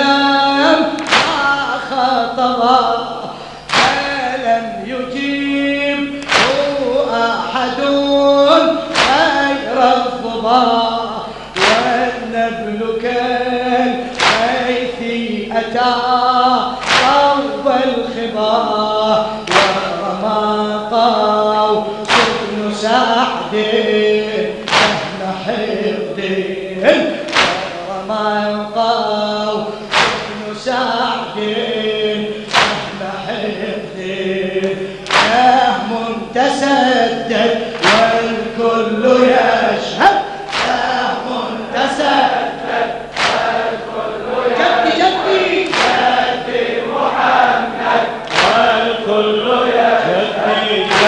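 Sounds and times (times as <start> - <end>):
lead reciter chanting: 0.0 - 51.0
men chanting: 0.0 - 51.0
chest-beating slaps: 1.0 - 1.6, 3.7 - 4.2, 6.2 - 6.8, 8.9 - 9.5, 11.6 - 12.0, 14.1 - 14.6, 16.8 - 17.3, 19.4 - 19.8, 22.0 - 22.6, 24.6 - 25.2, 27.1 - 27.8, 29.8 - 30.4, 32.5 - 33.0, 34.6 - 35.5, 37.7 - 38.2, 40.4 - 40.9, 43.1 - 43.6, 45.6 - 46.4, 48.2 - 48.8.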